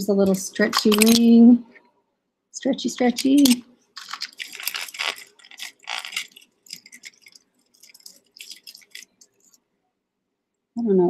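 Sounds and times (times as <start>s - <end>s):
metal jewelry clinking and jangling: 0.7s - 1.2s, 3.2s - 9.6s.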